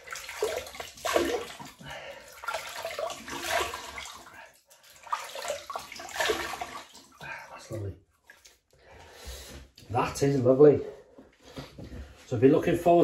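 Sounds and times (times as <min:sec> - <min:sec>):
water splashing on face: 0:00.0 - 0:07.7.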